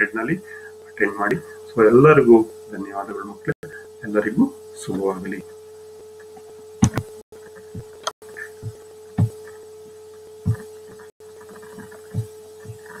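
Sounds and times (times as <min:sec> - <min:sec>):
electrical hum: 0:00.0 - 0:13.0
low thumps: 0:08.6 - 0:09.5, 0:10.4 - 0:10.8.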